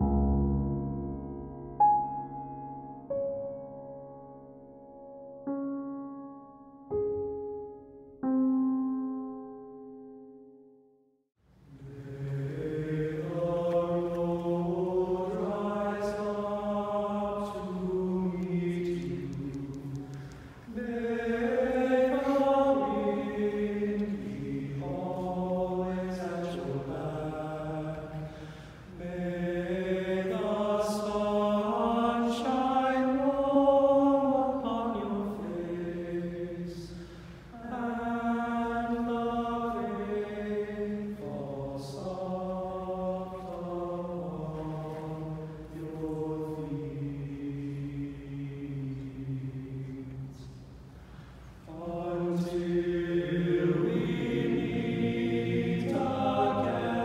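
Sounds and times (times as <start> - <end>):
choir singing held chords: 11.7 - 57.0.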